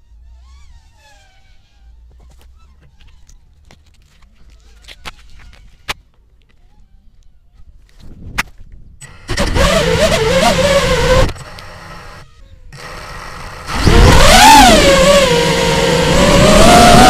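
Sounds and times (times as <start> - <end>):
drone motors and propellers whining: 9.0 - 17.0.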